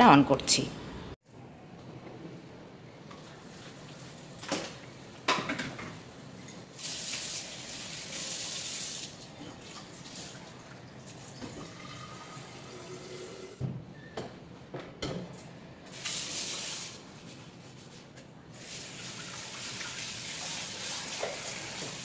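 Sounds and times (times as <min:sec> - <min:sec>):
dishes clinking against sink: 0:04.4 - 0:06.6.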